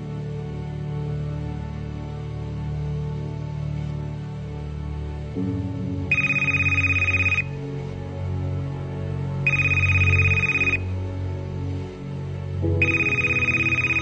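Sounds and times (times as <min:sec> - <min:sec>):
background music: 0:00.0 - 0:14.0
telephone electronic trill ringing: 0:06.1 - 0:07.5, 0:09.5 - 0:10.8, 0:12.8 - 0:14.0.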